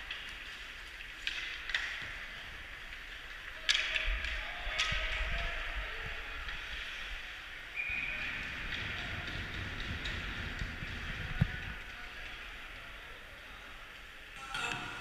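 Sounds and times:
hockey sticks and puck cracking: 0.0s - 5.5s, 7.8s - 12.4s.

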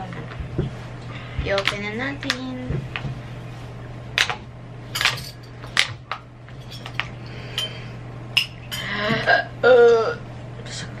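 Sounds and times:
steady low hum: 0.0s - 11.0s
metal spoons clinking on dishes: 6.6s - 7.8s.

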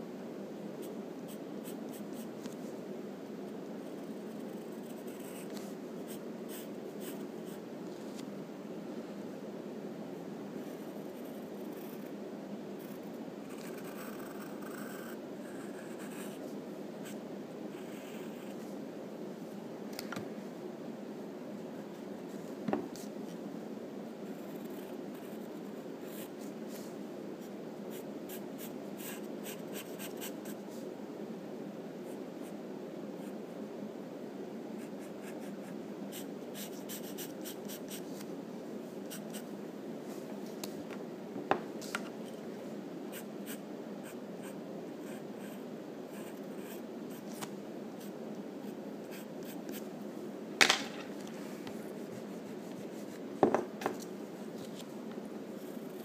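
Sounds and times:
steady low hum: 0.0s - 56.0s
pencil scratching on paper: 36.1s - 38.0s.

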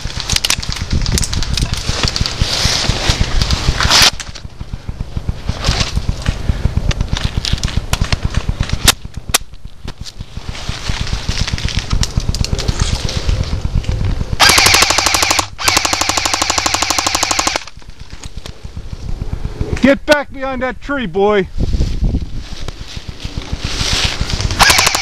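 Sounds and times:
airsoft guns firing bursts: 1.8s - 19.4s, 23.6s - 25.0s.

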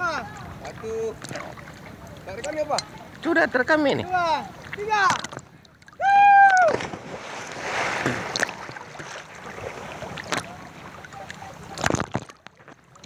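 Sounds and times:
waves sloshing: 0.0s - 13.0s
splash into water: 4.7s - 12.4s
person shouting: 6.0s - 6.7s.

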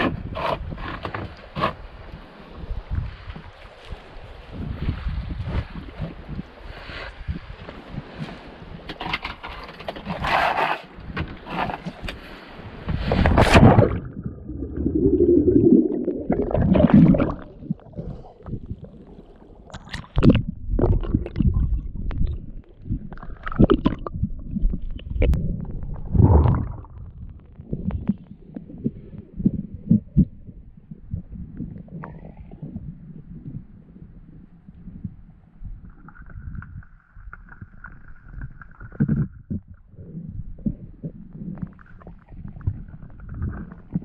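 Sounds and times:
muffled underwater sloshing: 11.4s - 44.0s.

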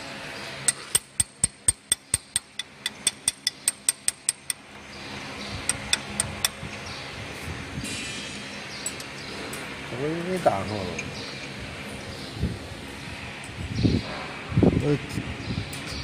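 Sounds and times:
sharp metallic clicks: 0.7s - 4.8s, 5.6s - 6.9s.

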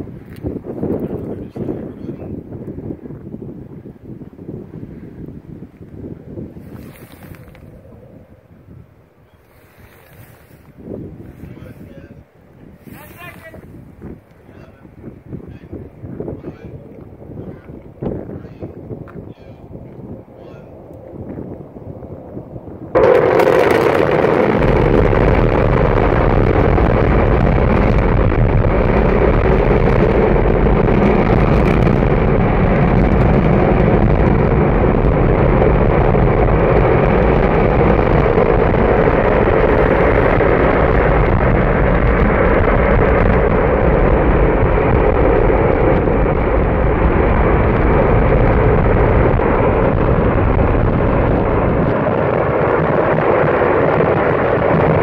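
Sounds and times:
rocket motor roaring: 22.7s - 55.0s.

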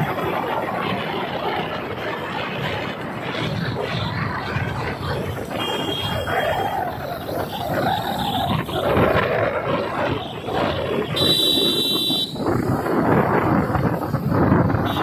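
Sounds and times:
road traffic: 0.0s - 15.0s
rushing air: 0.0s - 15.0s
vehicle horn: 5.6s - 6.3s, 11.2s - 12.4s.

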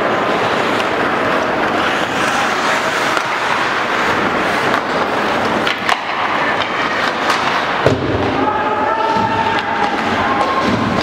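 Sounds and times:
crowd noise: 0.0s - 11.0s
skates scraping ice: 0.0s - 11.0s
clicks of sticks and puck: 0.4s - 8.1s, 9.1s - 11.0s.

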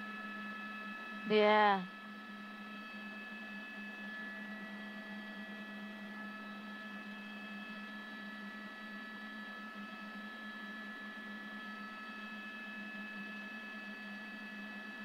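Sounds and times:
helicopter engine hum: 1.2s - 1.8s
high whining tones: 1.3s - 1.9s.

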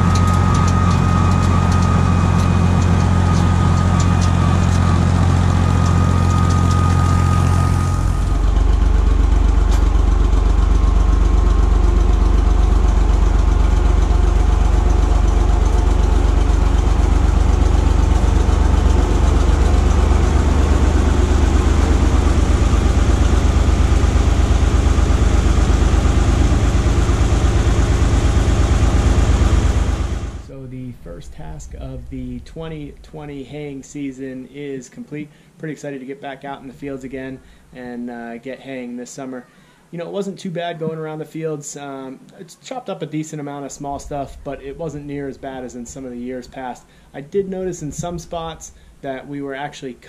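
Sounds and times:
rotary cutter mowing: 0.0s - 30.5s
tractor diesel engine running: 0.0s - 34.0s, 43.7s - 49.1s.

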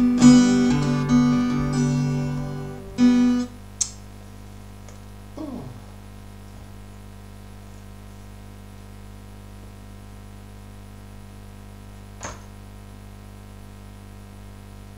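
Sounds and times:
electrical mains hum: 0.0s - 14.9s
sharp click: 3.8s - 4.0s.

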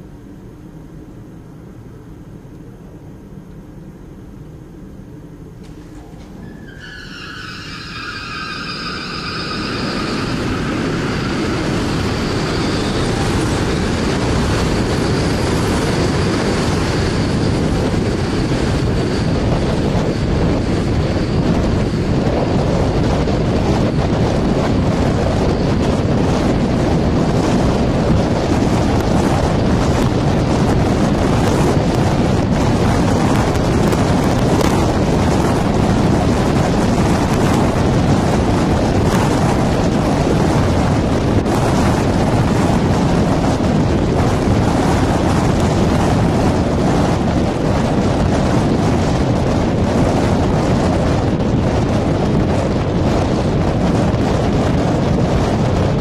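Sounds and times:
centrifuge rushing rumble: 5.2s - 56.0s
high whining tones: 5.7s - 23.4s.

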